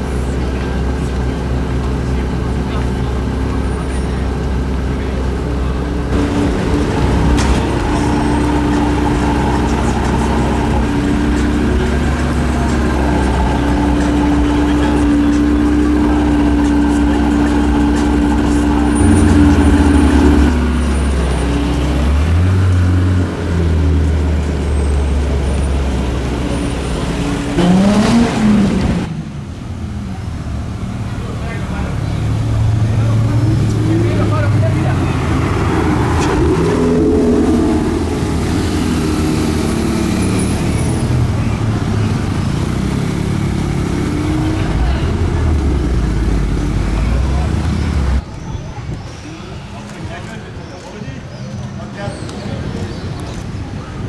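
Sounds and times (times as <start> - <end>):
car engine running at low speed: 0.0 - 48.2.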